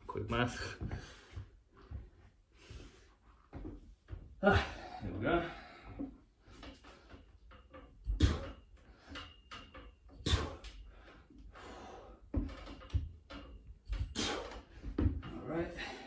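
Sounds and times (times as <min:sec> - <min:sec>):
metal frame knocking and rattling: 0:05.5 - 0:11.4, 0:12.2 - 0:16.0
person breathing: 0:10.3 - 0:12.2.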